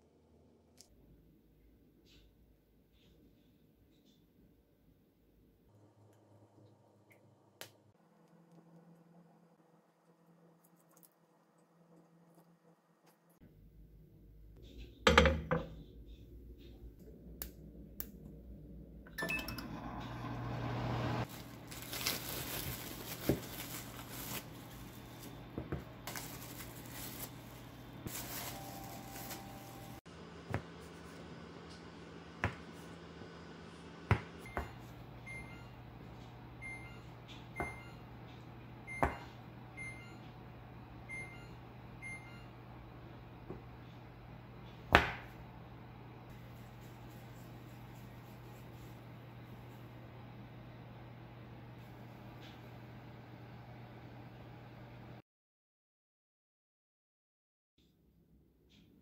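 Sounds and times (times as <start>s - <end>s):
oven fan humming: 15.0s - 55.2s.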